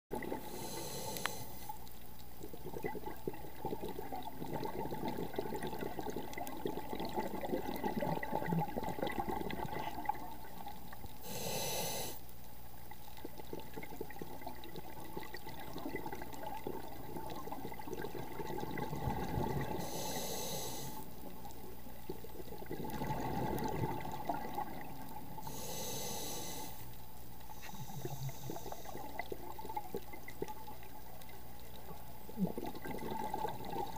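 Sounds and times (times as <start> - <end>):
regulator inhalation hiss: 0.4 - 1.7, 11.2 - 12.2, 19.8 - 21.1, 25.4 - 26.9, 27.6 - 29.1
exhaled breath bubbling underwater: 2.5 - 10.6, 13.2 - 21.1, 22.3 - 26.8, 27.5 - 30.1, 32.3 - 33.9.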